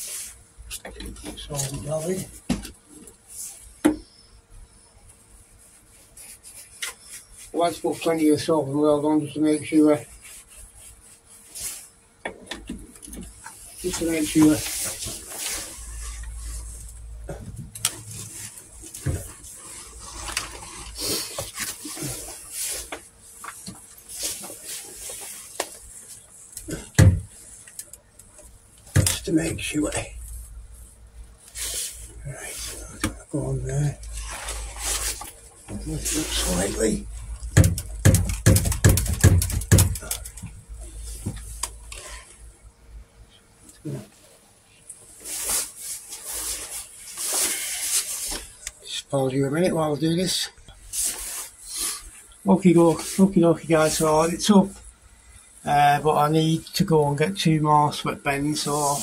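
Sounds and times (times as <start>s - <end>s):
cloth rustling: 5.1s - 8.1s, 9.9s - 12.0s, 13.2s - 27.8s, 28.4s - 42.4s, 43.9s - 48.8s
dull thump: 27.0s - 27.3s
handling clicks and knocks: 37.4s - 40.6s.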